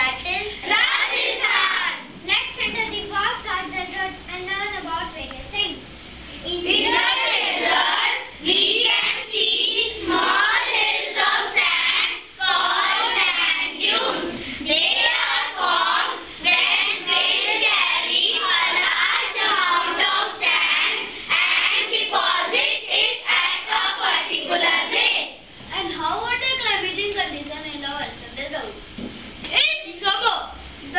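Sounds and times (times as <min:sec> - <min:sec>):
children singing in unison: 0:06.7 - 0:25.4.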